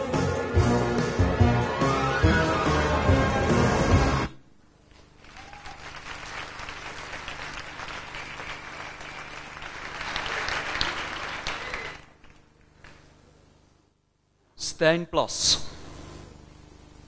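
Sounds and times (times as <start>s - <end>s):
audience applauding: 5.2s - 13.1s.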